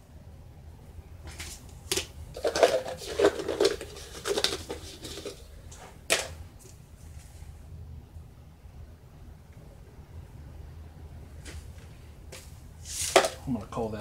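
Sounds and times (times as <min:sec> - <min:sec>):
measuring cups clattering: 0:01.3 - 0:06.4, 0:12.9 - 0:13.5.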